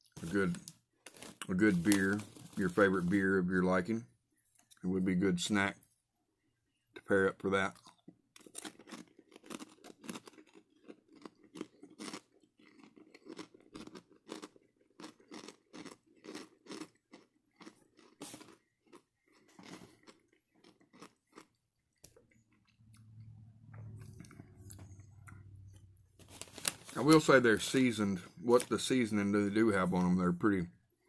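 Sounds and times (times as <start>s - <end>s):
chewing crunchy pork rinds: 7.0s - 25.9s.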